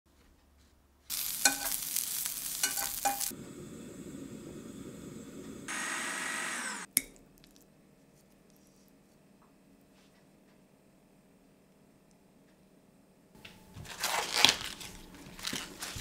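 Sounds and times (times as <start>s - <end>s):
loud sizzling with crackles: 1.1s - 6.9s
saucepan cooking noise: 1.1s - 7.3s.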